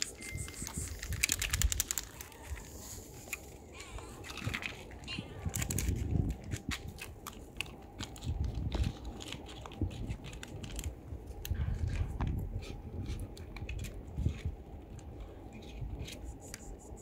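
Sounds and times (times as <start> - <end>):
foil pouch crinkling: 0.0 - 11.4
cat chewing and smacking: 0.3 - 16.9.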